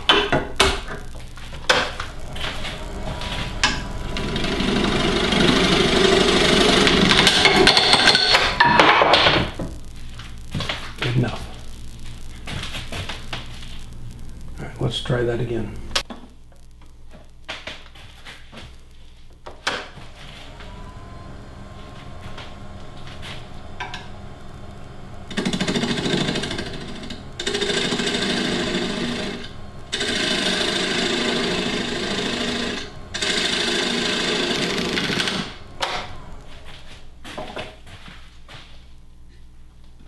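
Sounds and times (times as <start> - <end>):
wood lathe running: 0.0 - 9.3, 20.2 - 37.0
gouge rasping into spinning wood: 2.2 - 8.0.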